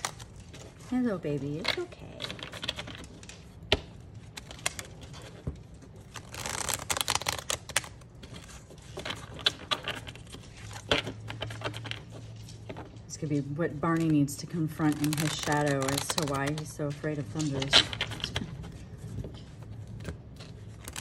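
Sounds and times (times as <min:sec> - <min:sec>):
card riffling: 0:00.0 - 0:00.8, 0:02.2 - 0:12.9, 0:13.9 - 0:18.8, 0:19.4 - 0:21.0
cards clicking and tapping: 0:13.9 - 0:21.0.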